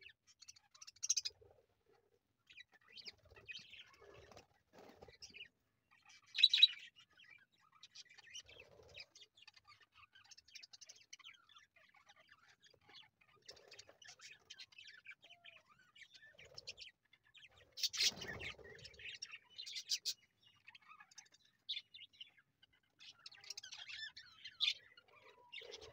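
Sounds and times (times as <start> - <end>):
budgerigars chirping: 0.4 - 1.3, 6.0 - 8.5, 12.6 - 25.9.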